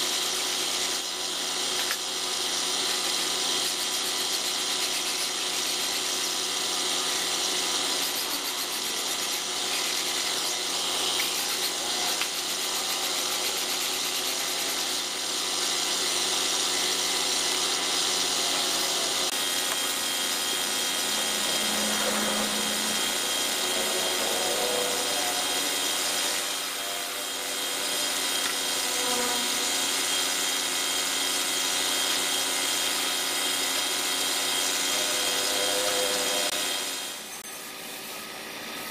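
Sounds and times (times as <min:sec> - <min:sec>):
paint spray gun hissing: 0:00.0 - 0:21.8
motor hum: 0:00.0 - 0:38.9.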